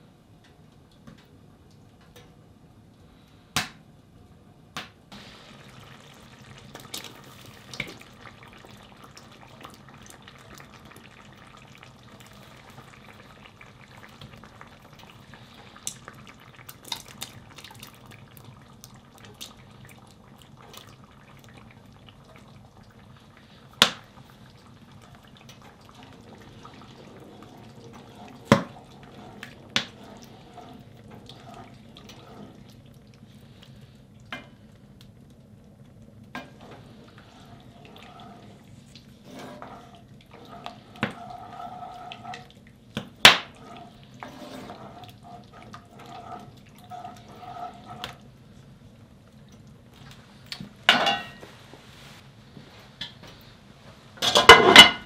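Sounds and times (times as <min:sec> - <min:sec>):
stew sizzling and simmering: 0:04.5 - 0:55.0
liquid pouring: 0:05.2 - 0:33.9, 0:36.6 - 0:48.3.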